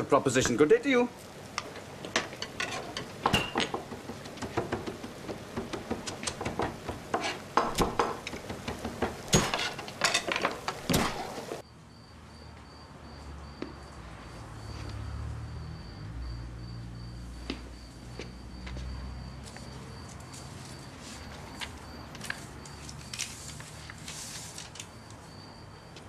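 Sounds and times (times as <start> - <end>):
sharp clicks and knocks: 1.6 - 11.5.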